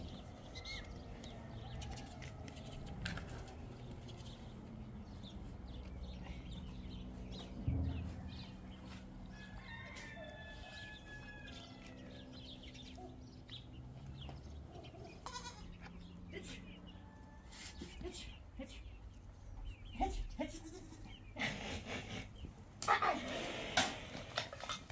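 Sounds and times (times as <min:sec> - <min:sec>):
low hum: 0:02.6 - 0:14.3
low thump: 0:07.5 - 0:09.0
rooster crowing: 0:09.2 - 0:12.6, 0:17.0 - 0:17.8
livestock calls: 0:14.9 - 0:15.8.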